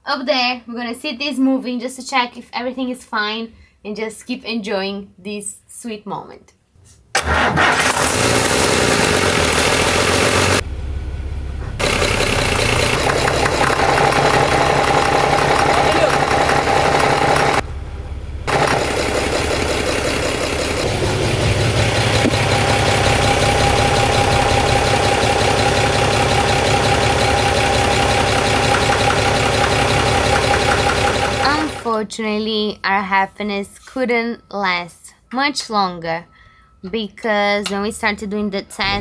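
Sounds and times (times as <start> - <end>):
diesel engine running loud: 7.8 - 31.9
steady whine: 10.0 - 31.9.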